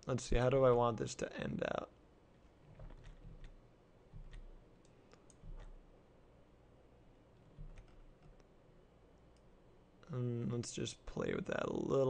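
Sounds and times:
keyboard keys clicking: 0:02.7 - 0:04.5, 0:07.4 - 0:08.4
soft low thumps: 0:04.1 - 0:04.6, 0:05.4 - 0:05.9, 0:07.5 - 0:08.1.

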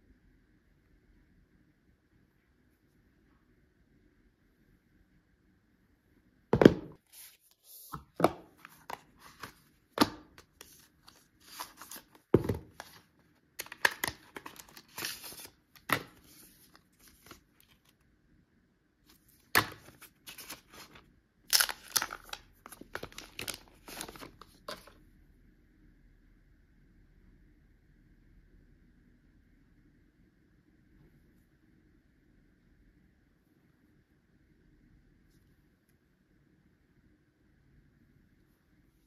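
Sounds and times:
paper rustling and crinkling: 0:07.1 - 0:18.0, 0:19.1 - 0:25.0.

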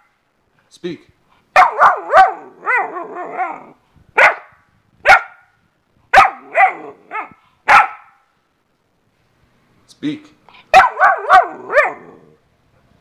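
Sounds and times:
puppy wavering cry: 0:01.6 - 0:04.4, 0:06.2 - 0:08.0, 0:10.8 - 0:12.4
puppy barking: 0:01.6 - 0:05.5, 0:06.1 - 0:08.2, 0:10.7 - 0:12.4.

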